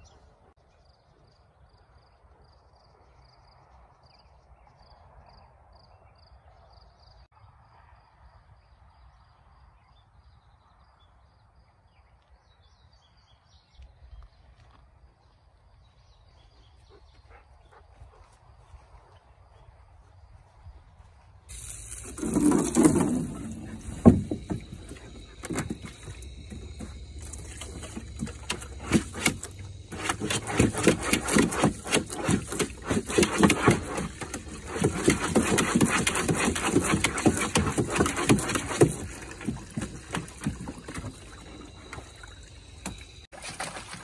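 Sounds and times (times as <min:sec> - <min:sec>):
faint outdoor sound: 0:00.0 - 0:44.0
dog splashing in water: 0:21.5 - 0:44.0.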